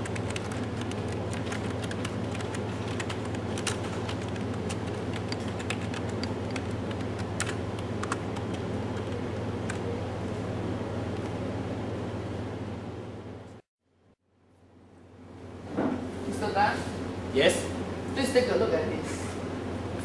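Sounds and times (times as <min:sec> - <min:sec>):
keyboard typing clicks: 0:00.0 - 0:09.1.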